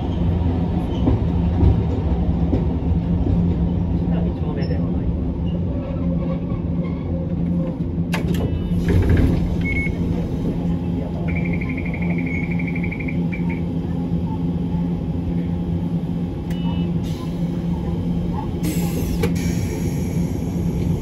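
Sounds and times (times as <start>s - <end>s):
tram rumble: 0.0s - 21.0s
constant hum: 5.4s - 21.0s.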